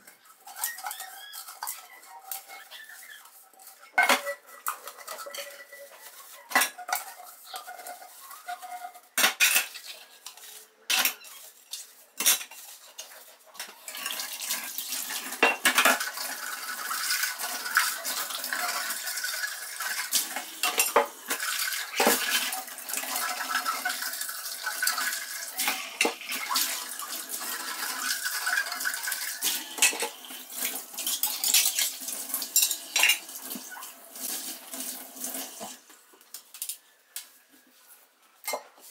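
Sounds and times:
dishes clinking in a sink: 3.8s - 10.0s, 15.3s - 16.3s, 16.9s - 33.8s, 38.4s - 38.9s
tap water running: 12.9s - 35.9s.

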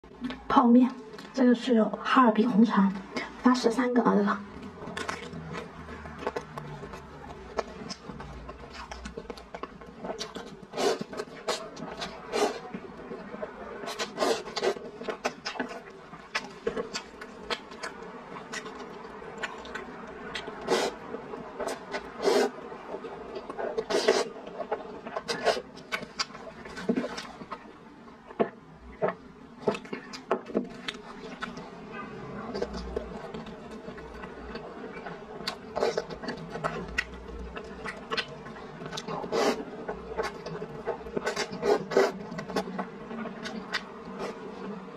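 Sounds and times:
wet chewing and mouth smacks: 4.6s - 12.4s, 13.3s - 21.0s, 23.4s - 27.6s, 28.4s - 31.6s, 32.6s - 44.4s
slurping noodles: 10.5s - 12.6s, 13.8s - 14.9s, 20.6s - 21.0s, 21.6s - 22.6s, 23.6s - 24.4s, 35.7s - 36.8s, 37.6s - 42.7s
loud noodle slurps: 10.7s - 11.3s, 13.9s - 14.8s, 20.6s - 21.0s, 22.2s - 22.6s, 23.8s - 24.3s, 39.2s - 39.6s.

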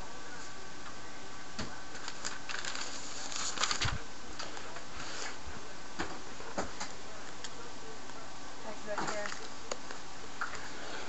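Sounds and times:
paper rustling: 1.9s - 5.4s.

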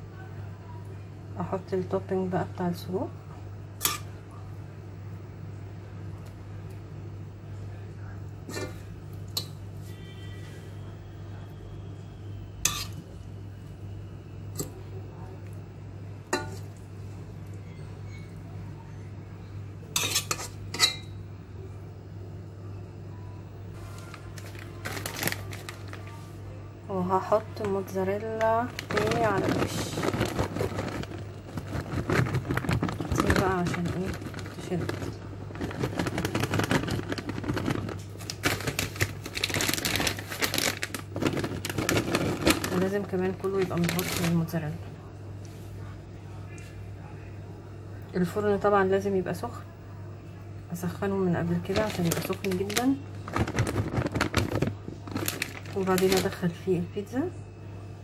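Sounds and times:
cheese shreds rustling onto pizza: 23.8s - 26.4s, 27.8s - 44.4s, 51.6s - 56.5s.

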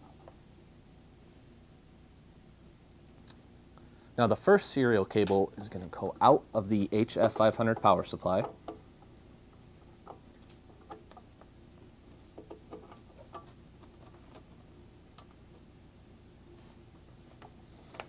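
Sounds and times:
low steady hum: 0.0s - 18.0s
cable and hoses clicking on metal box: 7.0s - 8.8s, 9.8s - 11.5s, 12.3s - 15.4s.

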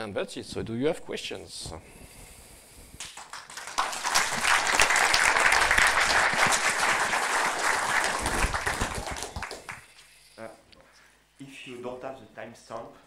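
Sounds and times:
audience applause: 3.0s - 9.9s.

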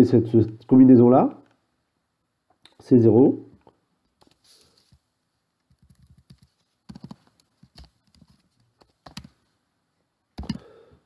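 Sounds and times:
computer keyboard keystrokes: 5.7s - 9.4s, 10.4s - 10.6s.

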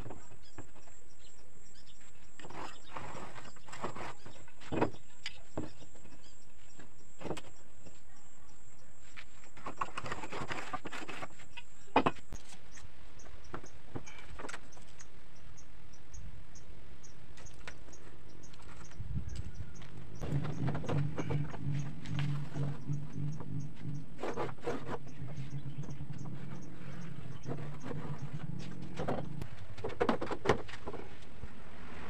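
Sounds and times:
pencil scratching on plywood: 20.2s - 29.1s.

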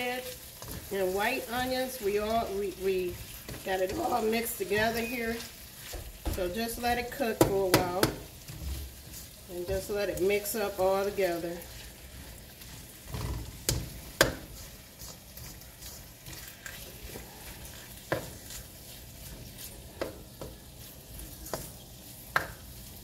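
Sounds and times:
food sizzling in a skillet: 0.0s - 23.0s
spatula scraping a pan: 0.0s - 23.0s.

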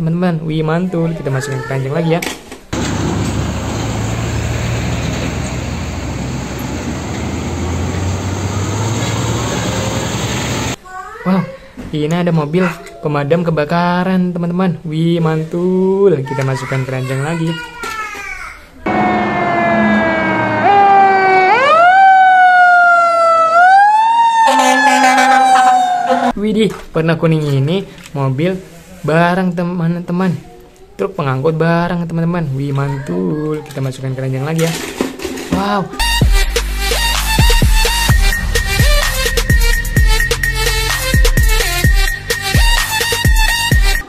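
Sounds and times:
diesel truck engine rumble: 2.8s - 10.8s
road traffic noise: 2.8s - 10.8s, 18.9s - 21.9s, 24.4s - 26.4s.

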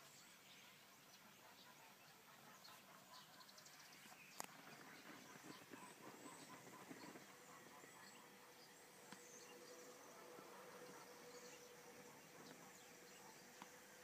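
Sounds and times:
faint steady hum: 0.0s - 14.0s
small ticks: 4.3s - 7.4s.

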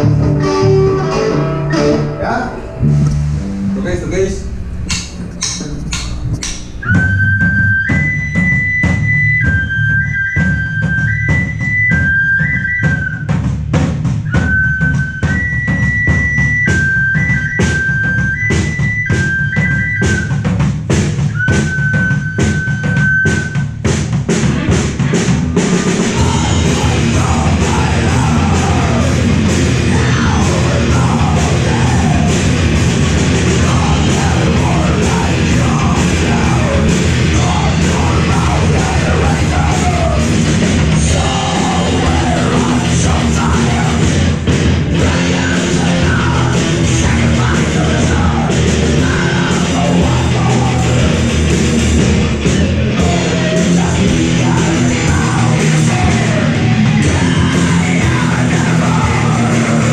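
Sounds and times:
harmonica long held notes: 0.0s - 3.8s, 14.3s - 20.4s
bass guitar: 0.0s - 59.9s
distorted electric guitars: 0.0s - 59.9s
drum kit beating: 0.0s - 59.9s.

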